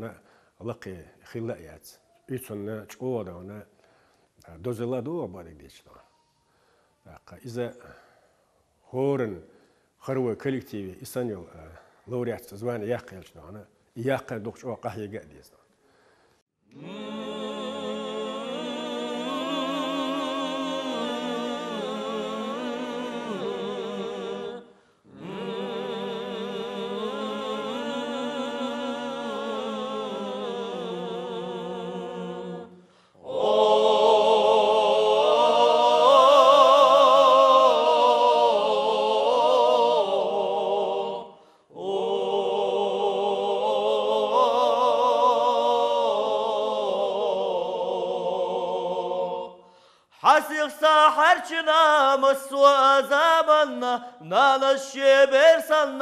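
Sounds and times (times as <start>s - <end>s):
male choir singing in harmony: 16.7s - 56.0s.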